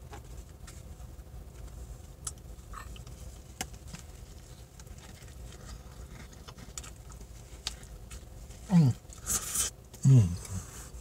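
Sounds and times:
low background rumble: 0:00.0 - 0:11.0
paper and cardboard crinkling: 0:03.8 - 0:08.6.

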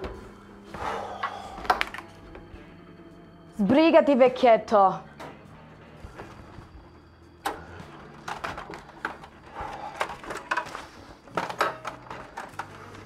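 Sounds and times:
cash register drawer rattling: 0:07.6 - 0:13.0.

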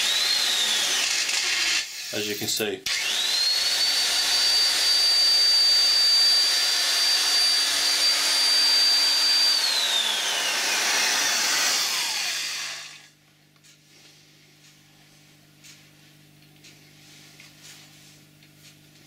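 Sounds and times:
electric drill motor whining: 0:00.0 - 0:02.3, 0:02.9 - 0:13.1.

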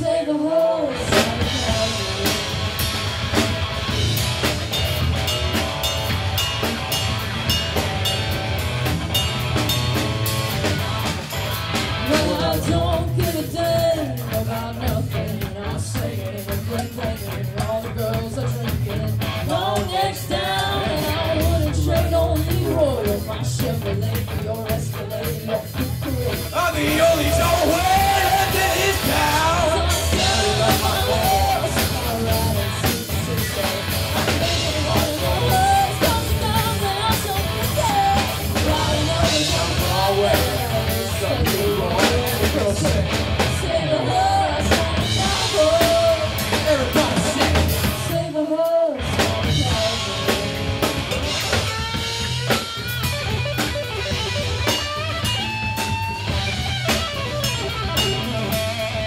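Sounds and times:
woman singing lead vocal: 0:00.0 - 0:03.0, 0:12.1 - 0:51.4
drum kit: 0:00.0 - 0:59.0
electric guitars: 0:00.0 - 0:59.0.

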